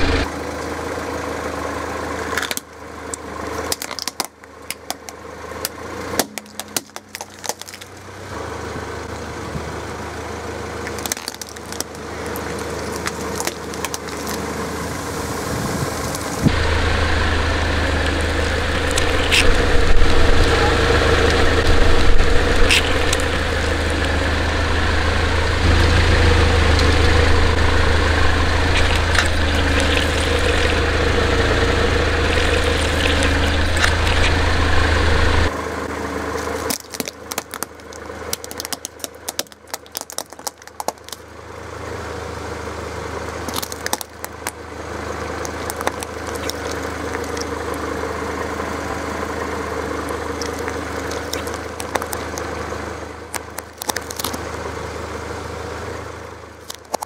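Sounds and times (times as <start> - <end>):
car engine running: 0.0 - 57.0
objects cracking under tyre: 2.2 - 8.2, 10.8 - 14.9, 15.5 - 35.5, 36.3 - 41.3, 43.4 - 47.9, 50.0 - 54.5, 56.6 - 57.0
crackling and clicking: 2.3 - 8.0, 10.8 - 14.5, 17.9 - 25.6, 26.6 - 30.9, 31.5 - 35.5, 36.4 - 41.2, 43.5 - 44.6, 45.3 - 47.8, 50.3 - 52.5, 53.3 - 54.4, 56.6 - 57.0.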